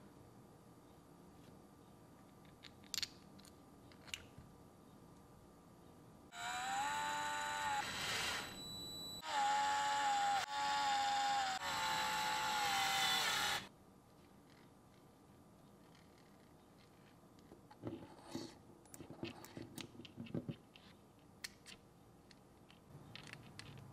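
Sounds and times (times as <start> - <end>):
electric screwdriver whining: 6.4 - 8.6, 9.2 - 13.7.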